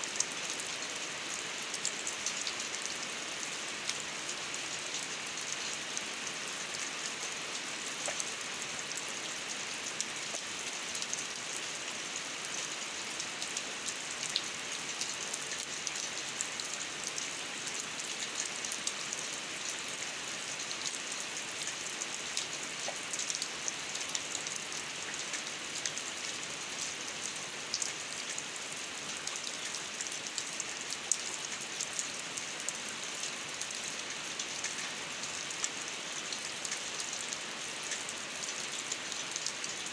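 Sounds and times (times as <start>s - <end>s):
rain on concrete and grass: 0.0s - 39.9s.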